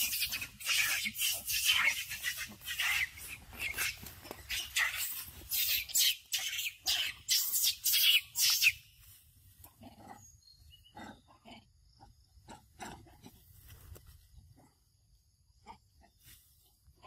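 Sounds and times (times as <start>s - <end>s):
monkeys scuffling in undergrowth: 0.0s - 9.7s.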